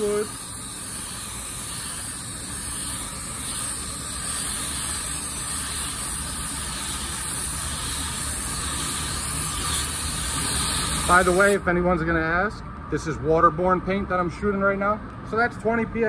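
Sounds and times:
spray gun hissing: 0.0 - 11.6.

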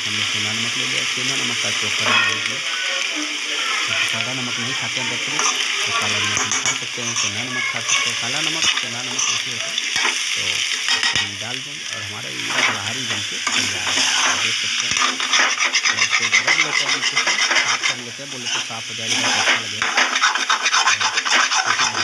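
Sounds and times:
frying sizzle: 0.0 - 22.0
spatula scraping metal pan: 2.0 - 2.6, 5.0 - 11.3, 12.4 - 22.0.

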